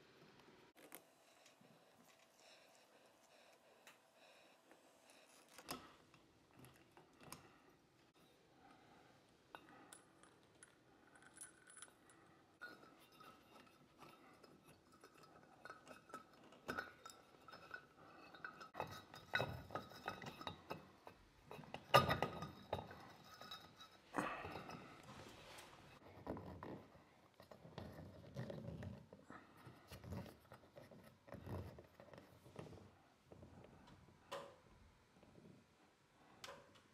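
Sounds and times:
small metallic clinks: 9.5s - 25.0s.

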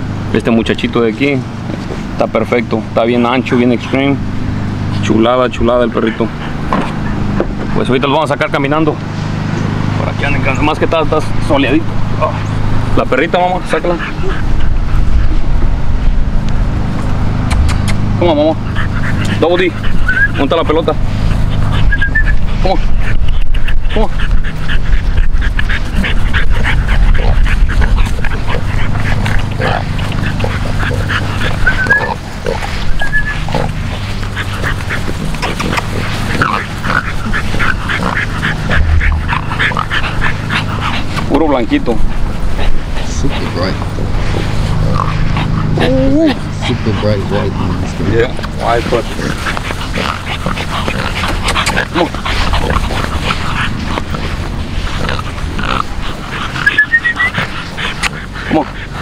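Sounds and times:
steady low hum: 0.0s - 59.0s
dogs and puppies yelping: 5.8s - 8.4s, 9.0s - 59.0s
steady low rumble: 11.0s - 56.8s.

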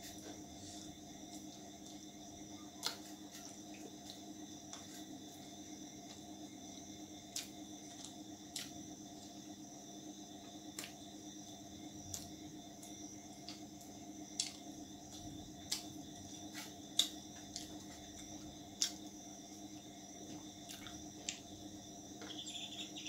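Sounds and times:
steady background drone: 20.8s - 23.0s.

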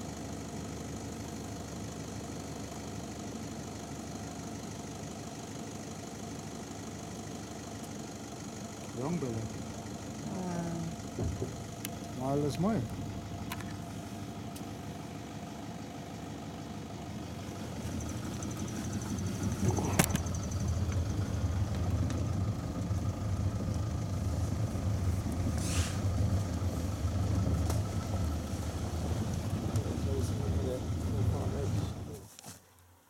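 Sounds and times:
vehicle engine humming: 0.0s - 33.0s
brief hiss: 25.6s - 26.1s.

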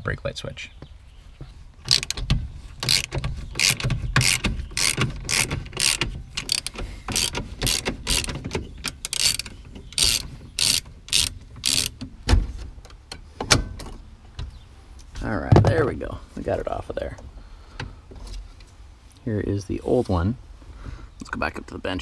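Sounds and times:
ratchet wrench clicking: 1.9s - 2.2s, 2.8s - 12.0s.

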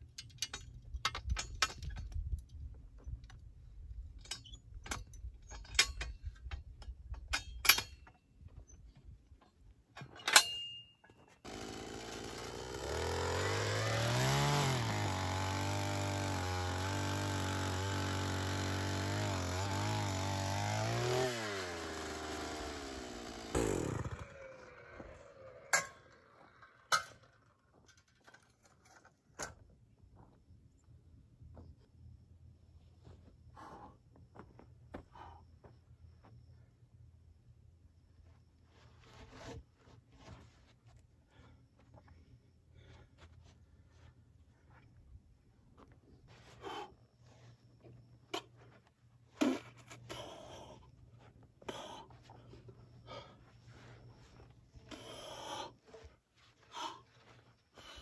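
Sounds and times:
hand tools scraping dry dirt: 10.0s - 27.1s, 38.6s - 41.1s, 45.8s - 58.0s
small earth auger engine: 11.4s - 29.0s, 51.7s - 58.0s.

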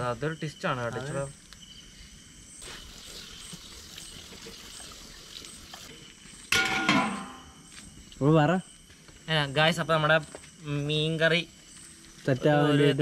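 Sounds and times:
faint cooking hiss: 1.9s - 6.4s
metal cookware clang: 6.5s - 7.6s.

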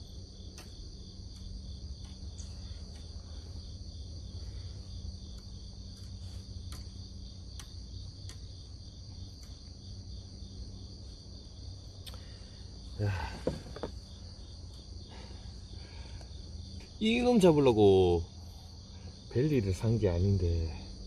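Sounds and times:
insects droning: 0.0s - 21.0s
knocks and rattles: 13.2s - 14.1s.

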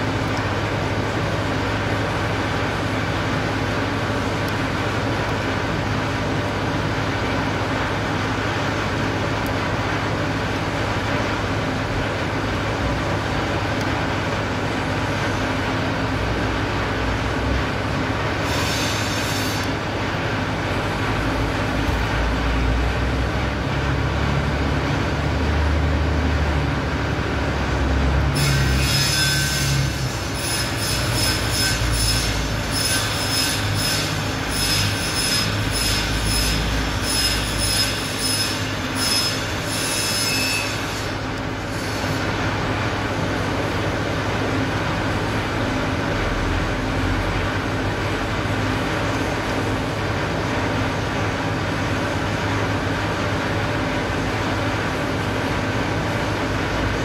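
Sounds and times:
high metallic squeals and clicks: 18.4s - 19.8s, 28.4s - 42.2s.

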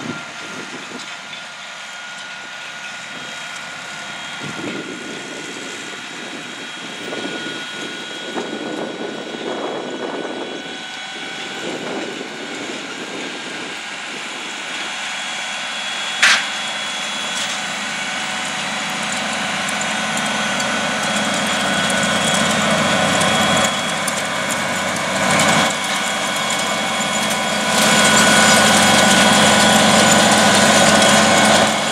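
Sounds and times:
high-pitched whine: 0.0s - 31.9s
tractor diesel engine under load: 0.0s - 31.9s.

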